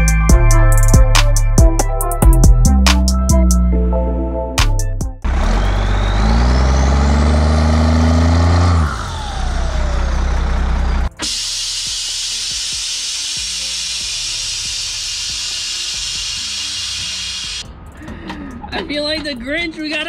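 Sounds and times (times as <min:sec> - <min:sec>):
rising whistle: 0:05.2 - 0:11.7
truck engine revving: 0:05.2 - 0:18.0
steady hiss: 0:11.3 - 0:17.6.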